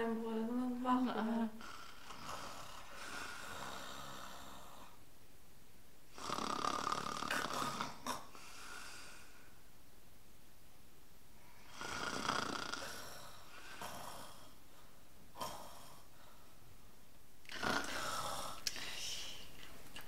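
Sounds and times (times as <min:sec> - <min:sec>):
person imitating snoring: 0:01.2 - 0:04.9, 0:06.2 - 0:08.4, 0:11.7 - 0:14.6, 0:15.3 - 0:16.1, 0:17.5 - 0:18.6.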